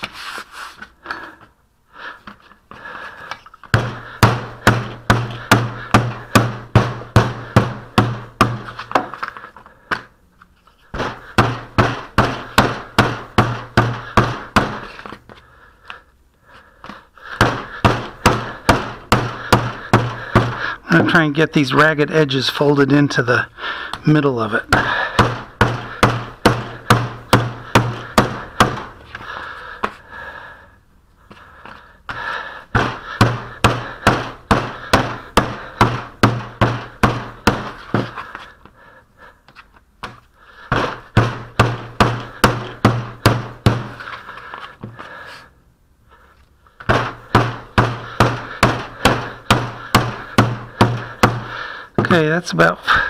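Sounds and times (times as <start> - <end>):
wooden mallet beating putty: 3.7 - 10.0, 10.9 - 15.2, 17.2 - 21.3, 24.6 - 29.0, 32.1 - 38.4, 40.0 - 44.2, 46.8 - 52.2.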